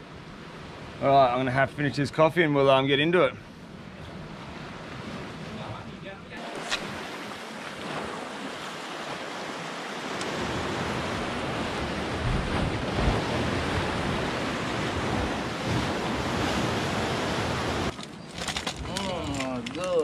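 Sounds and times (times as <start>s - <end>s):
sea surf breaking on rocks: 4.2s - 18.0s
wind buffeting microphone: 10.0s - 20.0s.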